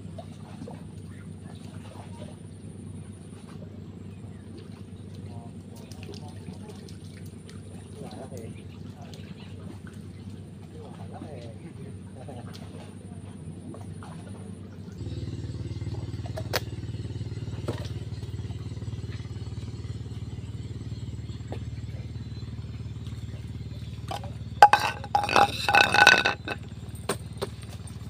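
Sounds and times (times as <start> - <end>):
small engine running: 12.7 - 28.0.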